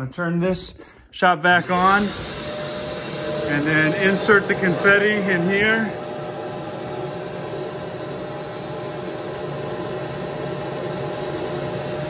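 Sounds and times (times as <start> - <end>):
shop vac blowing air with whine: 0.6 - 12.0.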